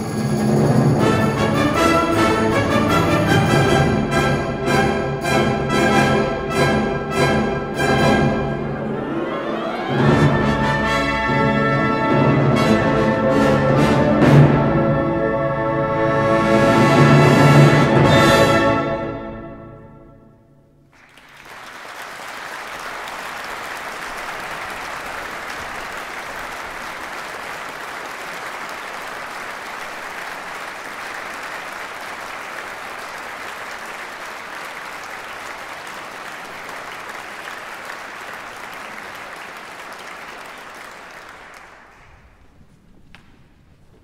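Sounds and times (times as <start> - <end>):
audience applause: 20.9 - 42.6.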